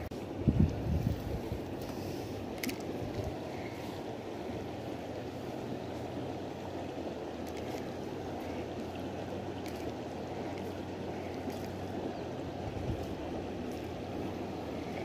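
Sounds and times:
stream water rushing: 0.0 - 15.0.

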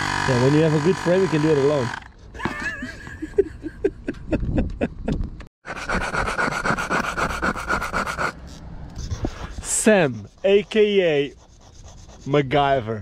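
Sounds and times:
hand air pump strokes: 0.0 - 2.2, 5.7 - 12.4.

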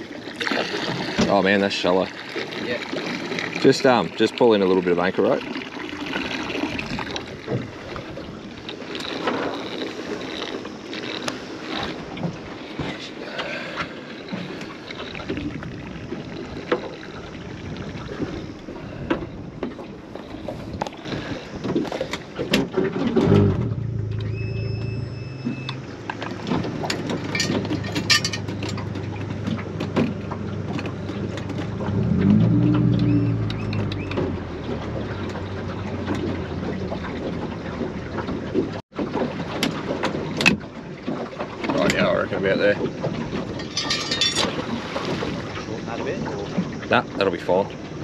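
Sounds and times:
boat motor humming: 0.0 - 48.0
wind buffeting microphone: 15.1 - 24.5
gear knocking and rattling: 26.1 - 32.4.

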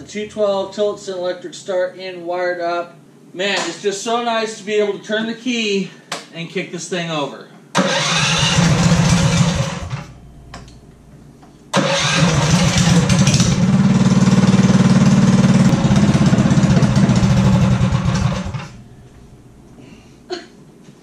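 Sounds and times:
kart engine running: 7.8 - 10.0, 11.8 - 18.8.

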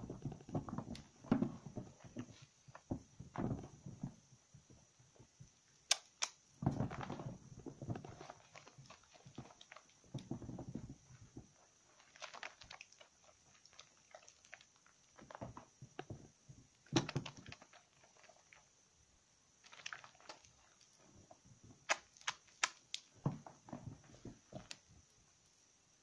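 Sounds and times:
sharp pops and clicks: 0.0 - 4.6, 5.4 - 18.7, 19.6 - 25.2
wet soap squelching: 11.4 - 16.1, 16.8 - 18.7, 19.6 - 23.2.

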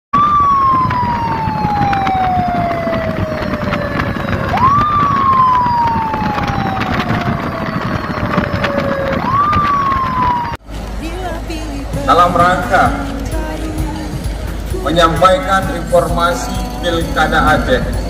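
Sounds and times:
siren wailing: 0.2 - 10.6.

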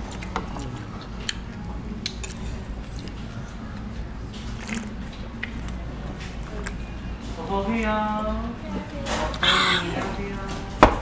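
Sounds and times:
wet chewing of food: 0.0 - 7.0
steady low hum: 0.0 - 11.0.

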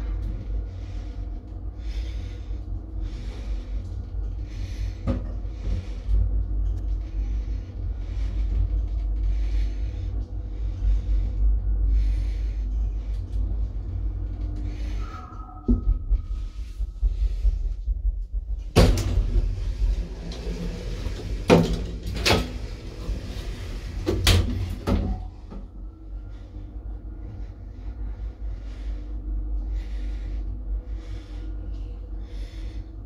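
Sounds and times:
elevator car humming: 0.0 - 33.0
elevator doors banging and latching: 18.7 - 25.8.

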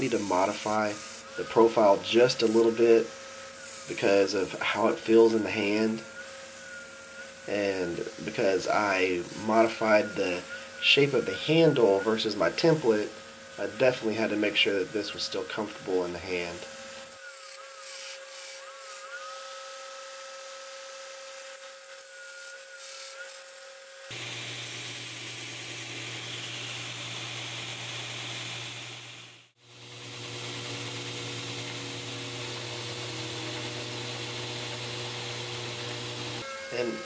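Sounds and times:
steel grinding on abrasive belt: 0.0 - 27.4, 29.8 - 37.0
belt grinder motor hum: 0.0 - 37.0.

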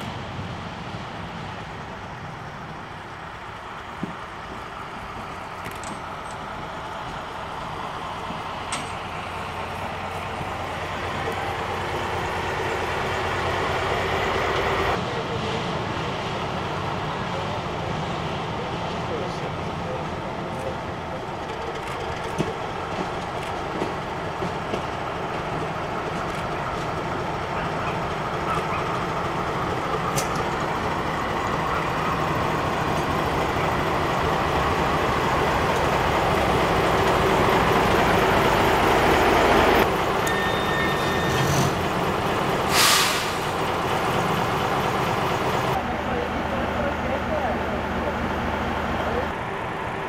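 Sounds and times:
railcar engine and wheels: 0.0 - 50.0
sharp hiss of air: 42.6 - 43.6.

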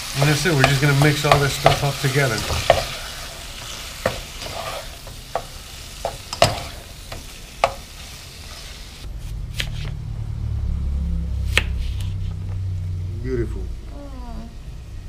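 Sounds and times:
spatula stirring: 0.0 - 8.7
meat sizzling in oil: 0.0 - 9.1
low hum: 9.0 - 15.0.

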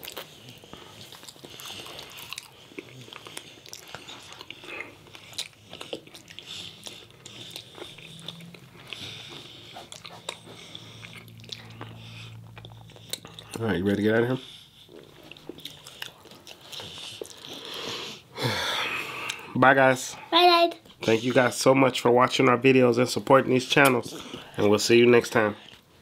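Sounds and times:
biting and chewing food: 0.0 - 18.3.

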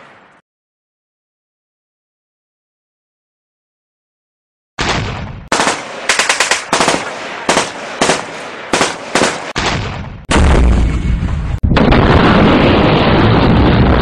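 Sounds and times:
machine-gun bursts: 5.5 - 9.6
deep explosion: 9.5 - 14.0.

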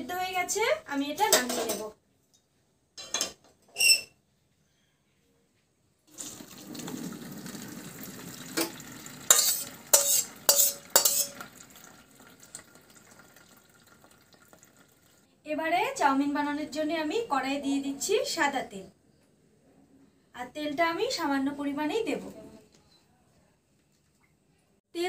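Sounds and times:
utensils clinking on steel pans: 1.2 - 2.0, 3.0 - 4.1, 8.5 - 11.6
water draining into colander: 6.1 - 15.2.

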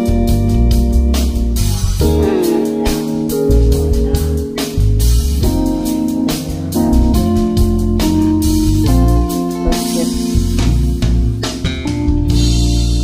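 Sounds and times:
background music with steady beat: 0.0 - 13.0.

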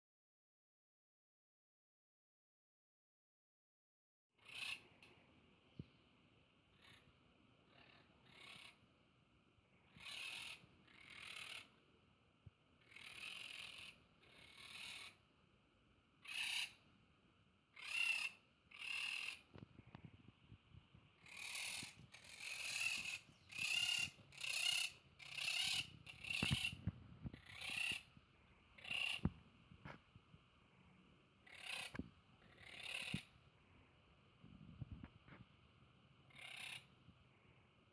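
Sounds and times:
parakeets squawking: 4.4 - 4.8, 7.7 - 8.8, 10.0 - 11.7, 12.8 - 15.2, 16.2 - 16.8, 17.8 - 19.5, 21.2 - 28.1, 28.8 - 29.3, 31.4 - 33.3, 36.3 - 36.9.

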